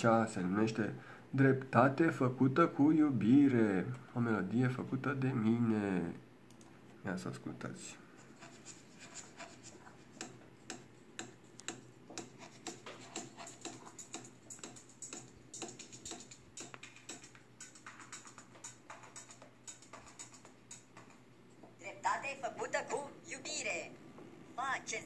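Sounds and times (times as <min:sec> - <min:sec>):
faint electronic song: 0:09.1 - 0:23.8
clicking beat: 0:10.2 - 0:21.3.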